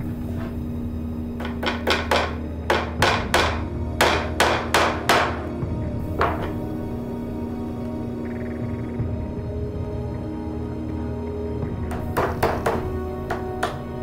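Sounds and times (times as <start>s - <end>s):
hammer tapping nails into wood: 1.4s - 5.5s, 11.8s - 14.0s.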